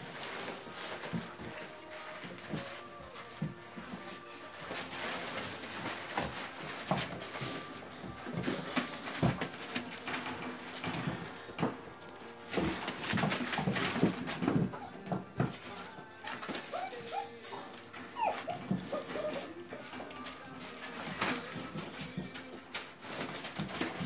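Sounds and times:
newspaper crinkling and rustling: 0.0s - 24.0s
puppy whines and yips: 16.6s - 19.5s.

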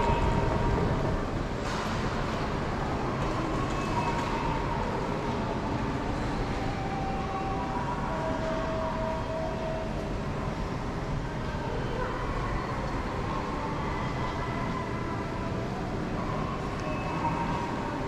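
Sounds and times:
faint indistinct voices: 0.0s - 18.0s.

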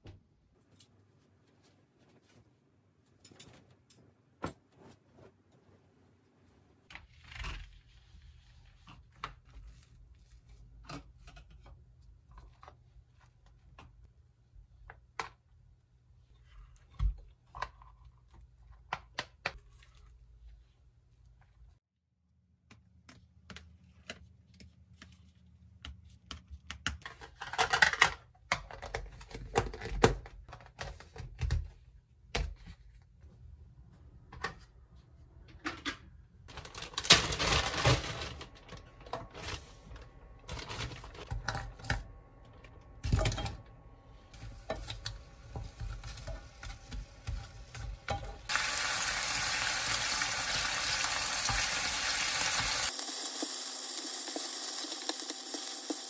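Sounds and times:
plastic containers and utensils clicking: 26.3s - 31.7s
meat sizzling in a frying pan: 48.5s - 56.0s
tap water running in a sink: 48.5s - 56.0s.

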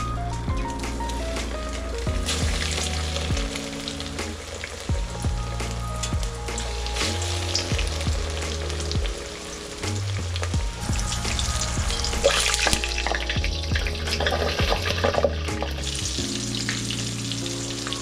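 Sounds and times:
background music with bass line: 0.0s - 18.0s
fish sizzling in hot oil: 2.2s - 4.9s, 6.4s - 14.6s.

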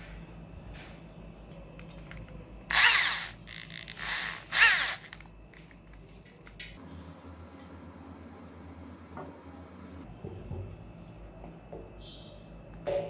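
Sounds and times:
electric drill whine: 2.7s - 5.3s.

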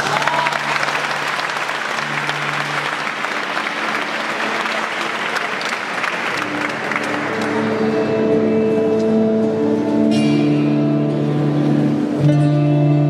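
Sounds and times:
audience applauding: 0.0s - 8.1s
plucked guitar and mandolin: 6.5s - 13.0s.

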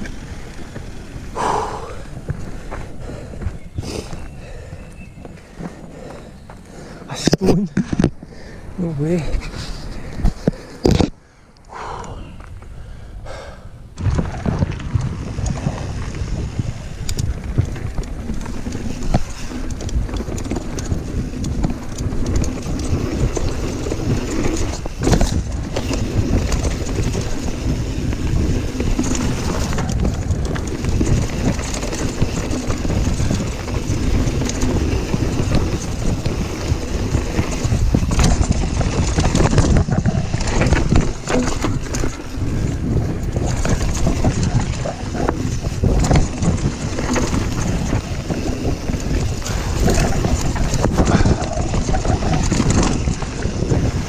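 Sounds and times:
tyres rumbling on dirt: 0.0s - 8.2s, 13.9s - 54.0s
wind buffeting microphone: 0.0s - 54.0s
rattling bike frame and chain: 14.8s - 54.0s.

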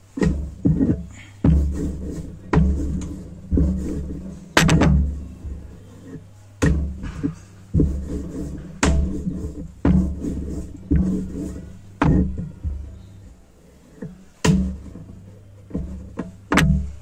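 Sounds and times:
rolling pin rumble: 0.0s - 17.0s
rolling pin knocking on board: 6.6s - 12.9s, 14.0s - 15.0s.

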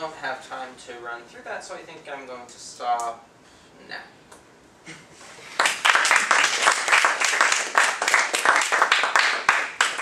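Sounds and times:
audience applauding: 5.6s - 10.0s.

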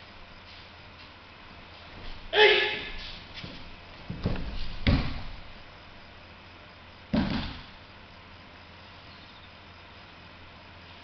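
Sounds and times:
bodies thudding on mats: 3.3s - 5.5s, 7.1s - 7.8s.

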